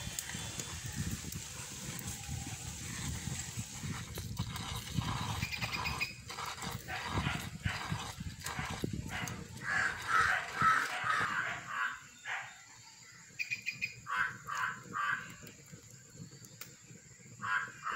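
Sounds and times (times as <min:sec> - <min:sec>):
crow cawing: 0:14.1 - 0:15.2.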